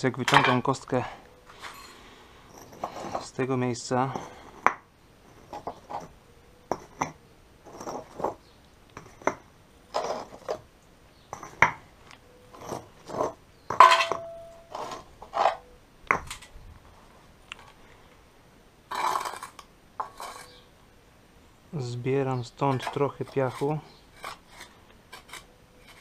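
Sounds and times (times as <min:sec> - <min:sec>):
blocks scraping on sand: 0:01.5 - 0:10.7, 0:12.5 - 0:13.4, 0:14.6 - 0:15.6, 0:18.9 - 0:20.6, 0:22.7 - 0:26.0
concrete blocks clacking together: 0:09.0 - 0:10.6, 0:11.3 - 0:11.8, 0:12.6 - 0:16.5
brief ring: 0:14.0 - 0:14.7.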